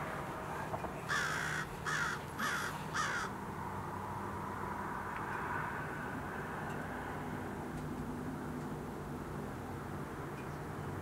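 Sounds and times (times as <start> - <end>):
bird giving harsh caw calls: 1.1 - 3.4.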